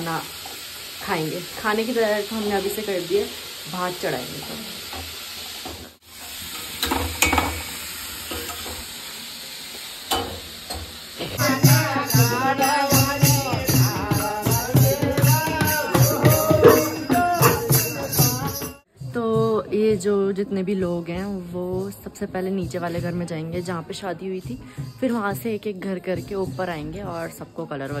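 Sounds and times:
frying sizzle: 0.0s - 18.7s
group singing: 11.2s - 18.8s
hand percussion beat: 11.2s - 20.0s.

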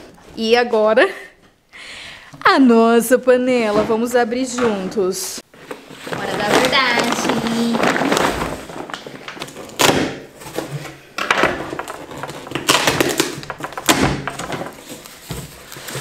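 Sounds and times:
packaging rustling and scraping: 5.4s - 16.0s.

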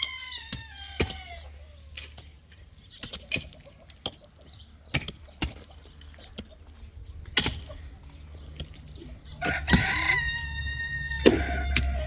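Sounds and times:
rooster crowing: 9.4s - 12.0s.

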